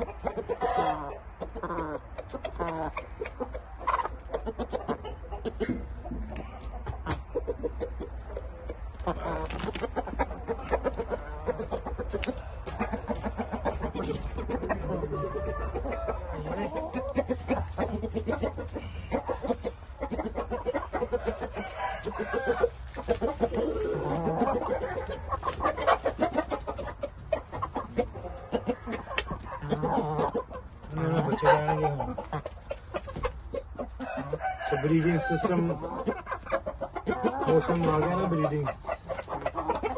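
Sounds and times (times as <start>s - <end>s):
chickens clucking: 0.0s - 39.9s
rooster crowing: 15.0s - 16.5s, 21.1s - 22.8s, 34.0s - 35.8s.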